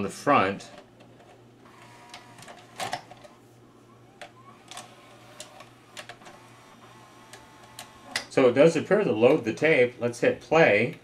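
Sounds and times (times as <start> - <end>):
faint motor whine: 0.0 - 11.0
steady low hum: 0.0 - 11.0
mechanical clicks and clunks: 4.2 - 8.4.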